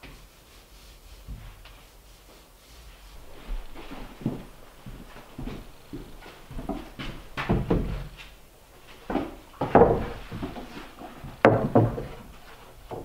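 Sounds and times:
wooden battens knocking together: 9.2s - 13.0s.

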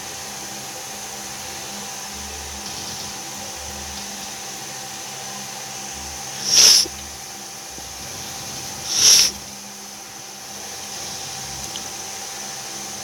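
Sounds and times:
steady background hum: 0.0s - 13.0s
short loud hisses: 6.4s - 7.0s, 8.2s - 9.5s.

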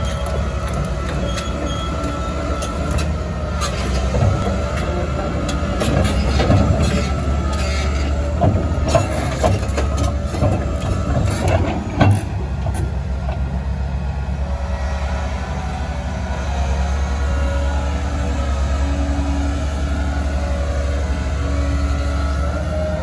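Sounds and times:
excavator diesel engine droning: 0.0s - 23.0s
metallic clanks and knocks: 5.4s - 13.4s.

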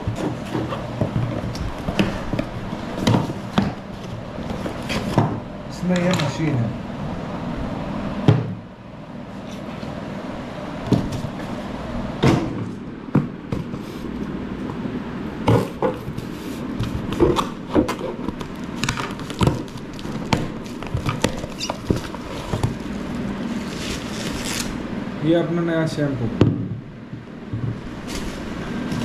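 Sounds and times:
boxes being opened by hand: 0.0s - 6.2s, 12.2s - 24.8s
steady background noise: 0.0s - 29.0s.

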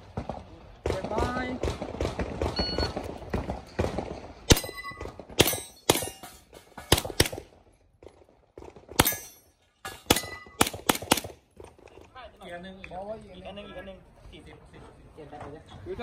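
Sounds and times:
steel targets ringing: 4.5s - 7.0s, 9.0s - 10.6s.

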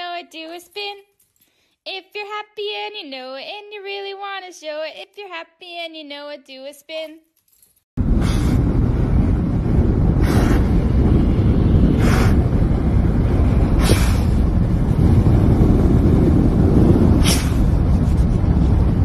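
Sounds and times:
wind rumble on microphone: 8.0s - 19.0s.

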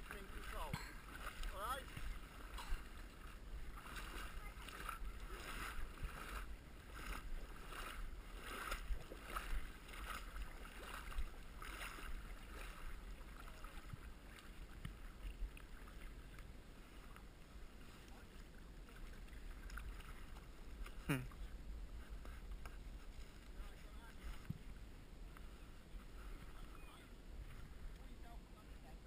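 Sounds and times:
splashes of wading in water: 0.0s - 29.0s
low wind rumble on microphone: 1.9s - 16.8s.

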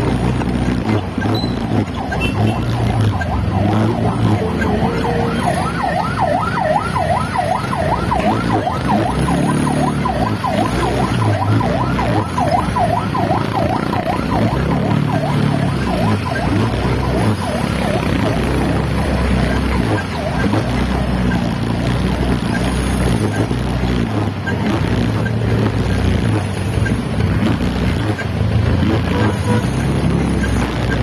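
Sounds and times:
motorcycle engines humming: 0.0s - 31.0s
ambulance siren yelping: 0.7s - 25.3s.

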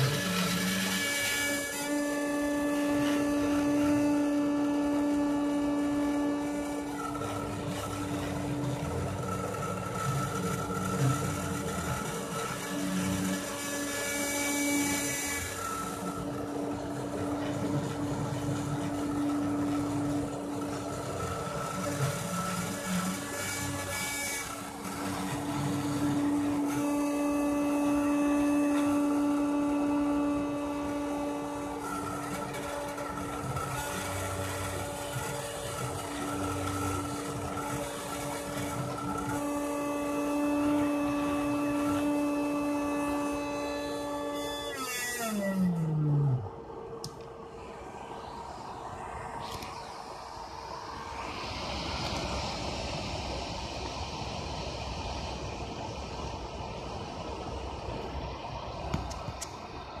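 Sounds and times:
stepper motors whirring: 0.0s - 47.4s
rotary tool spindle whine: 0.0s - 60.0s.

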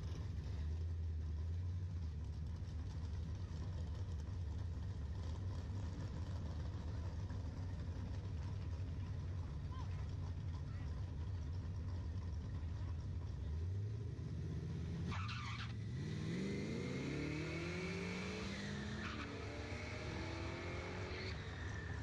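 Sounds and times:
race car engines accelerating: 2.0s - 22.0s.

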